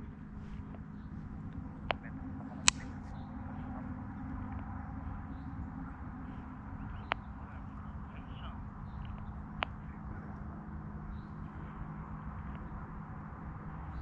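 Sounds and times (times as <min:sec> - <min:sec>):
steady low rumble: 0:00.0 - 0:14.0
short sharp clicks: 0:02.6 - 0:03.0.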